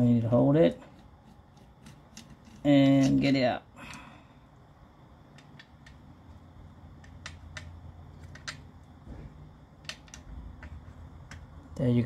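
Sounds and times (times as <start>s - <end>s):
faint low hum: 0.0s - 12.0s
light metallic clicks and taps: 9.8s - 11.6s.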